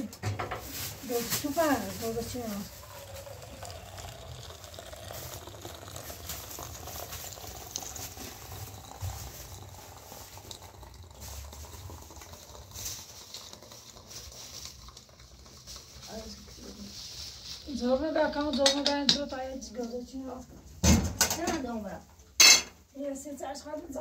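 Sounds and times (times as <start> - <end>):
hot water pouring into teapot: 0.6 - 18.8.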